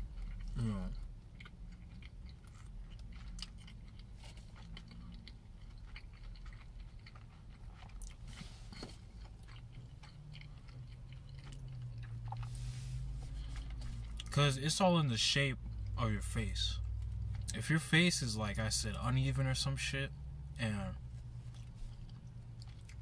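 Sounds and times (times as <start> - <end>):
person chewing food: 0.0 - 14.4, 15.6 - 17.6, 21.0 - 23.0
steady low hum: 0.0 - 23.0.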